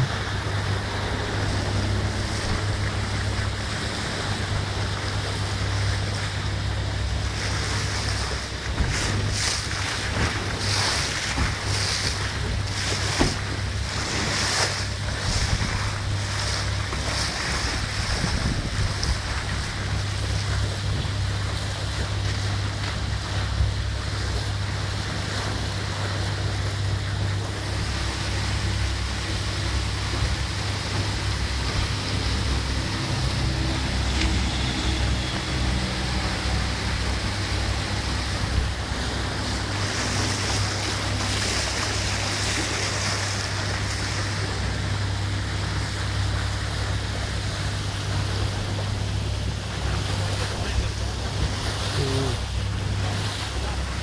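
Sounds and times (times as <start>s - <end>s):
boat engine drone: 0.0s - 54.0s
rushing water: 0.0s - 54.0s
wind buffeting microphone: 7.8s - 21.6s.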